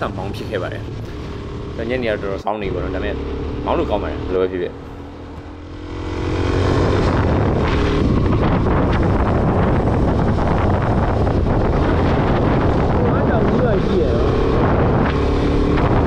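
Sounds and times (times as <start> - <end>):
motorcycle engine: 0.0 - 16.0
wind rushing over microphone: 5.0 - 16.0.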